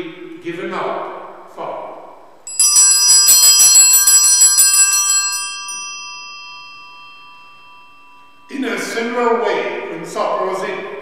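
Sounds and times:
bells shaken rapidly: 2.5 - 9.8.

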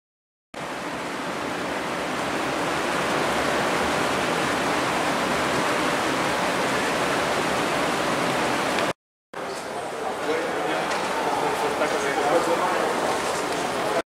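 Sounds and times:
steady rushing noise: 0.6 - 8.9.

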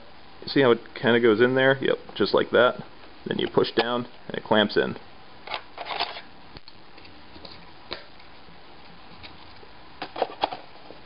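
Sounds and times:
laptop handling clicks and rustles: 5.5 - 6.3, 10.0 - 10.9.

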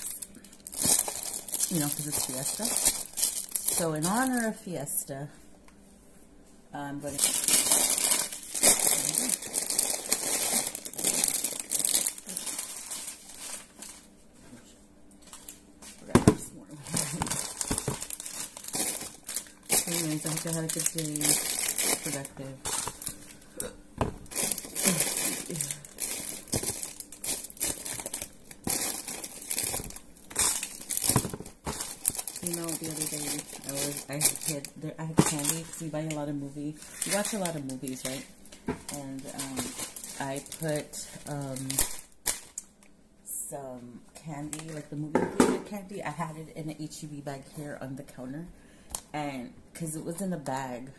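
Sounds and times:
plastic snack packets crinkling: 0.0 - 4.6, 7.0 - 14.2, 16.6 - 23.4, 24.2 - 42.7.

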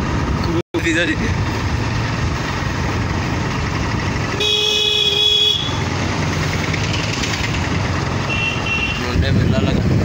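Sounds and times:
scooter engine and wind rumble: 0.0 - 10.0
vehicle horn: 4.3 - 5.9, 8.2 - 9.1.

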